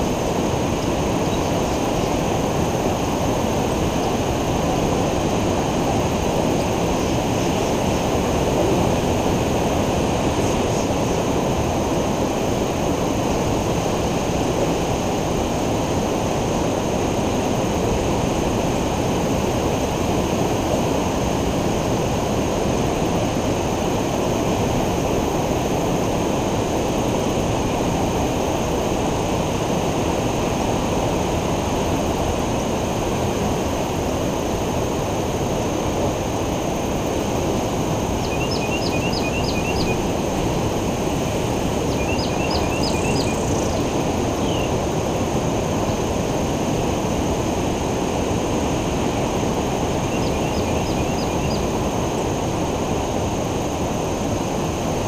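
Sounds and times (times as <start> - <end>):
bird chirping: 38.2 - 40.0, 41.9 - 44.7, 50.1 - 51.6.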